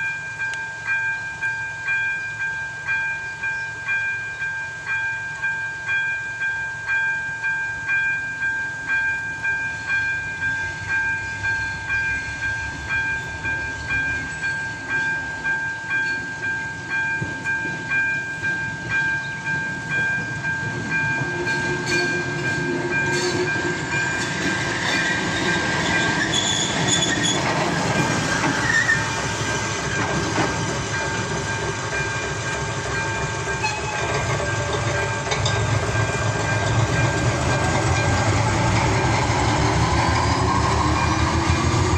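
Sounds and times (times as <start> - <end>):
two-tone crossing bell dinging: 0.0 - 24.6, 25.4 - 39.7
diesel locomotive running: 8.7 - 41.9.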